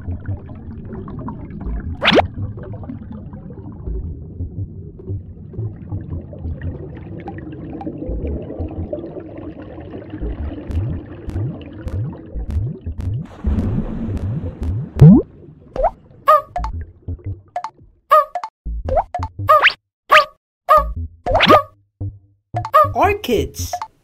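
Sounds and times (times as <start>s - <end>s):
low bubbling rumble: 0.0s - 18.0s
rising bubble blips: 0.0s - 19.8s, 20.7s - 23.0s.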